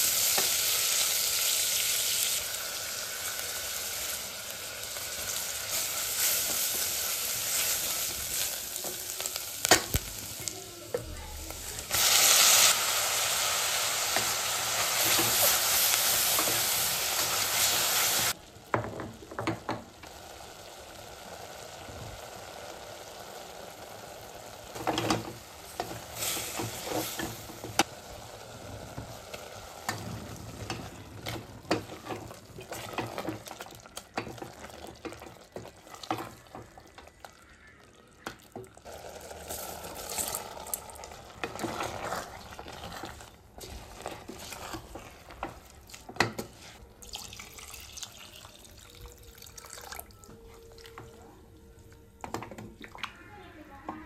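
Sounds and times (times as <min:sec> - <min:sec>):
food sizzling: 0:00.0 - 0:54.0
water pouring into pot: 0:11.5 - 0:51.2
spatula scraping in pot: 0:41.4 - 0:46.9.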